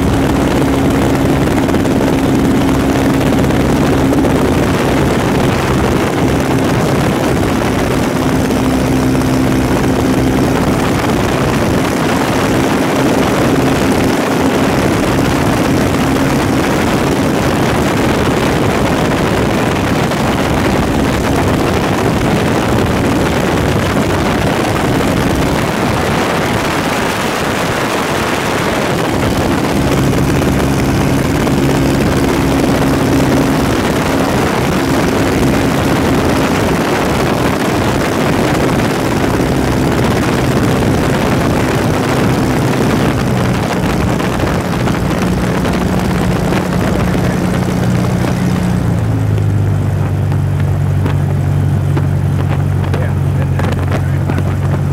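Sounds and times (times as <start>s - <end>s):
propeller engine droning: 0.0s - 54.9s
wind rush: 0.0s - 54.9s.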